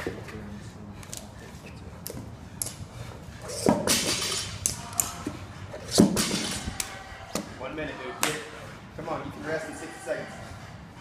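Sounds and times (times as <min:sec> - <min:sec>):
metal plates clinking: 0:03.5 - 0:05.2.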